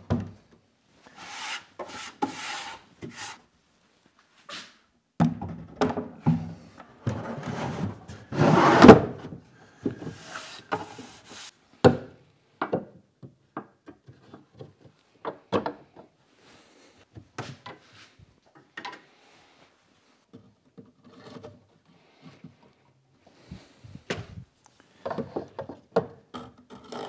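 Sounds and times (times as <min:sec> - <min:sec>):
wood knocking and scraping: 0:09.8 - 0:11.5.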